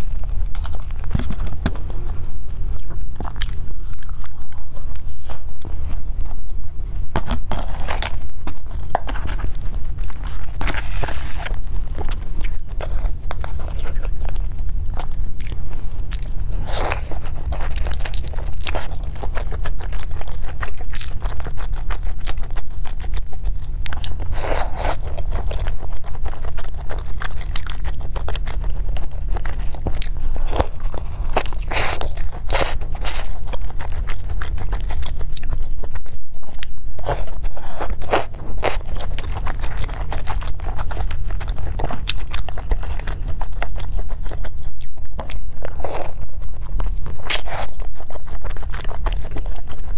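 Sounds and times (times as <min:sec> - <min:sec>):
crunchy chewing: 0:00.0 - 0:49.9
steady low hum: 0:00.0 - 0:49.9.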